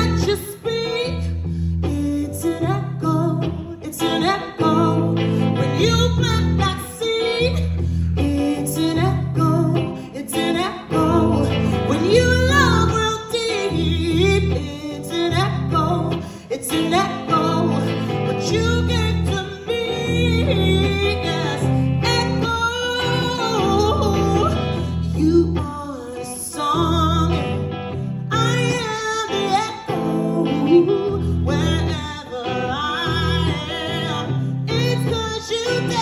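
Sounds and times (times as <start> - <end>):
electric guitar strumming: 0.0 - 36.0
woman singing: 0.0 - 36.0
bass line: 4.6 - 9.9, 10.9 - 25.7.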